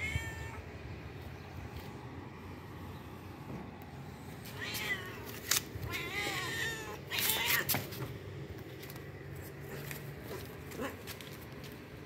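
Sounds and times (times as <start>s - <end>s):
cats meowing: 0.0s - 0.8s, 4.4s - 7.8s.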